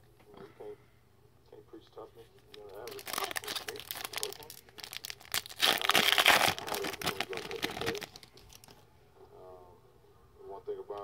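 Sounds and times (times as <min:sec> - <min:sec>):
foil wrapper crinkling and tearing: 0:02.5 - 0:08.8.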